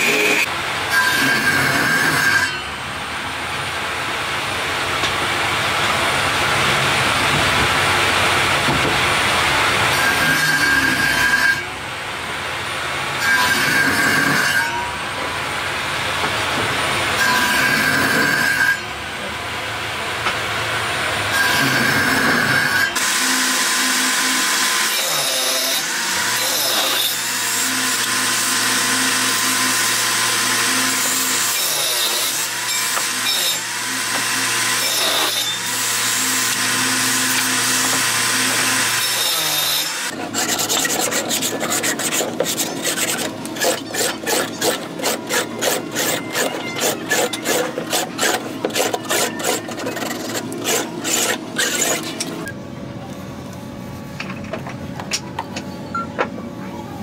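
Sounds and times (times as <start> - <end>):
sanding drum motor humming: 39.9 - 52.4
hand rubbing wood: 40.2 - 52.2.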